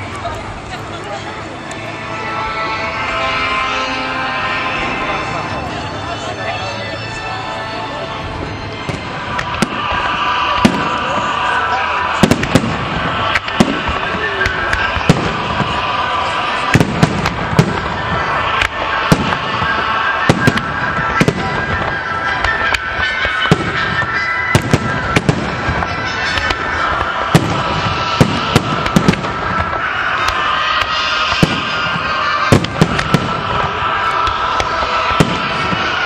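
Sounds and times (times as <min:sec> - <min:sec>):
steady dense din: 0:00.0 - 0:36.0
firework shells bursting: 0:12.1 - 0:36.0.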